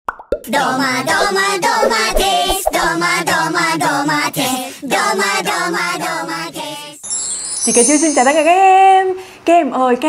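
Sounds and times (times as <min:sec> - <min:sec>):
jingle music with singing: 0:05.7 - 0:08.8.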